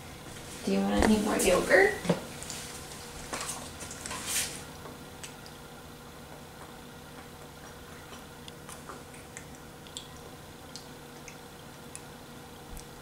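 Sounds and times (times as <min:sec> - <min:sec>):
low room hum: 0:00.0 - 0:13.0.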